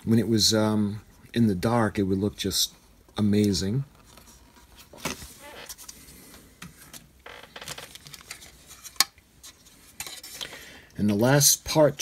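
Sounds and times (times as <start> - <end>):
plastic parts clicking and rustling: 6.6 - 10.6.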